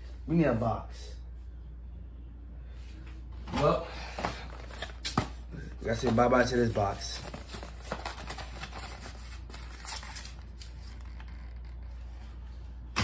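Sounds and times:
steady low hum: 0.0 - 13.0
box handling clicks and rustles: 7.2 - 11.9.

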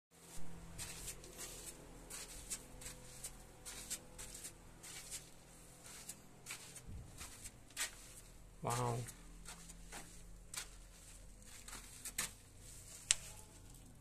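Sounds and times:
faint steady hum: 0.2 - 14.0
footsteps on gritty floor: 0.2 - 14.0.

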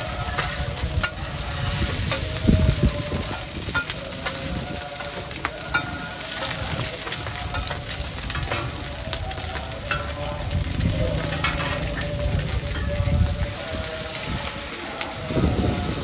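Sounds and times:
metal spatulas scraping a pan: 0.0 - 8.9, 11.2 - 13.0
omelettes sizzling on a griddle: 0.0 - 16.0.

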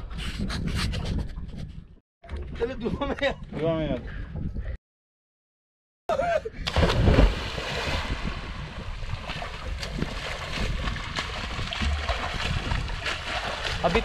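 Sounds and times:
wind noise on microphone: 0.0 - 4.8, 6.6 - 14.0
loud splash into water: 6.6 - 8.6
swimming splashes: 6.7 - 14.0.

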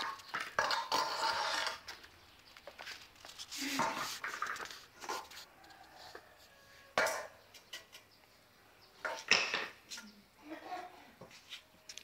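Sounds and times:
broom scraping on wet tiles: 0.6 - 2.0, 2.8 - 5.5.

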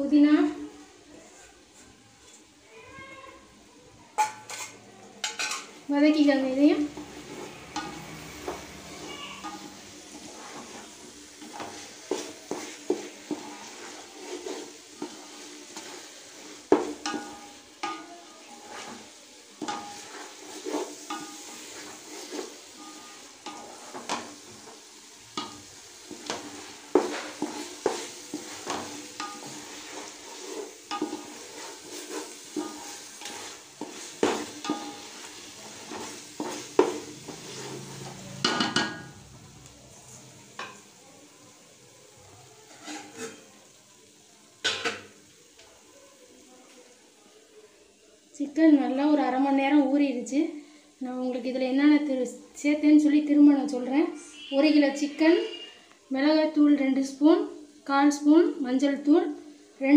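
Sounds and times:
food sizzling: 0.0 - 59.9
spatula scraping metal pot: 4.2 - 5.7, 6.8 - 39.1, 42.6 - 43.5.

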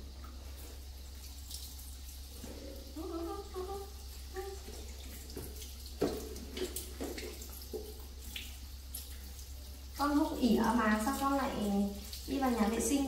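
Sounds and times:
tap water running into sink: 0.0 - 13.0
things knocking in sink: 4.7 - 7.9.

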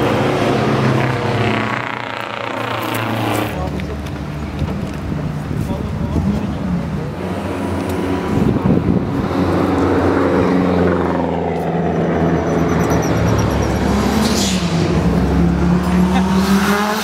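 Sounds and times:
rally car engine revving: 0.0 - 17.0.

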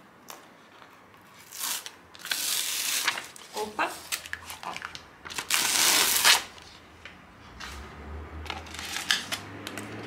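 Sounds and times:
paper liner crackling and rustling: 1.4 - 6.7.

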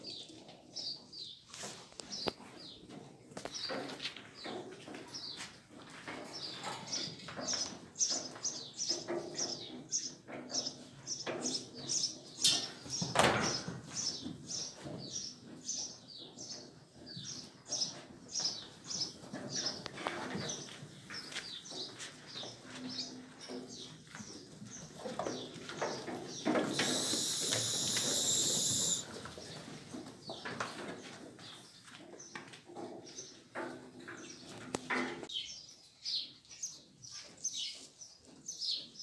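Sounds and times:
small birds chirping: 14.0 - 29.5
brief burst of noise: 26.7 - 29.0.

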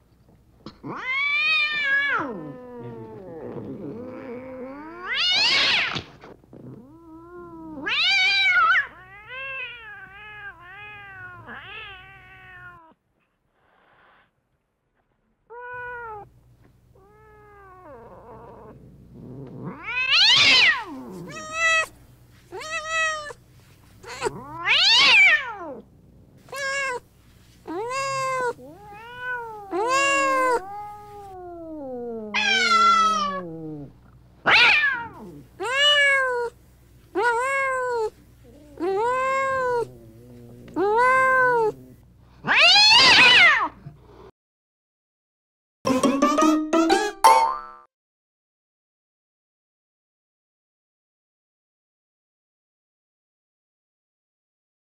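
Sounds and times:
cats meowing: 0.7 - 13.0, 19.4 - 23.4, 24.0 - 25.8, 26.5 - 27.0, 27.7 - 33.9, 34.5 - 36.6, 37.2 - 43.8.

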